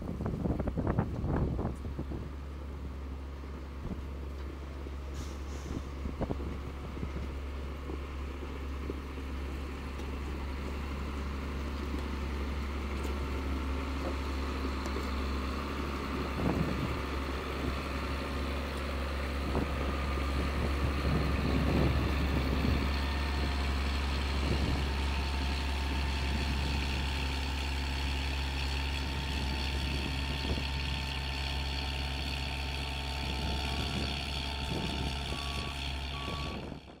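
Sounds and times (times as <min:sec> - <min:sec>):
diesel engine running: 0:00.0 - 0:37.0
gravel crunching and clattering: 0:03.5 - 0:37.0
backup alarm beeping: 0:35.3 - 0:36.8.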